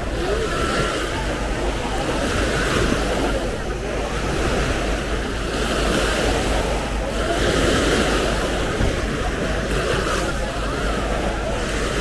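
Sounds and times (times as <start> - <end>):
small waves washing on beach: 0.0 - 12.0.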